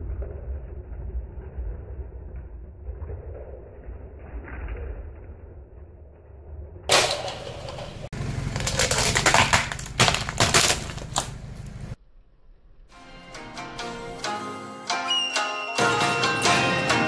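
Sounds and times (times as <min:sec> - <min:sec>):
low rumble: 0:00.0 - 0:09.8, 0:10.9 - 0:13.0
plastic cups cracking under tyre: 0:06.9 - 0:11.9.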